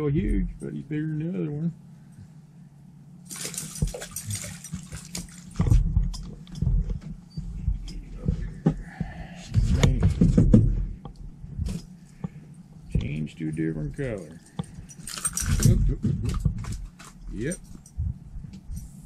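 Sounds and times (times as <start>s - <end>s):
water splashing: 3.3s - 5.7s
knocks and thumps: 4.7s - 13.2s, 15.6s - 16.9s.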